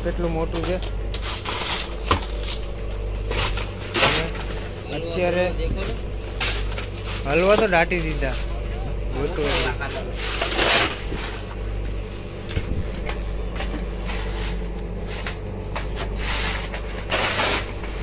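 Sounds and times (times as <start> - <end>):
boat engine droning: 0.0 - 18.0.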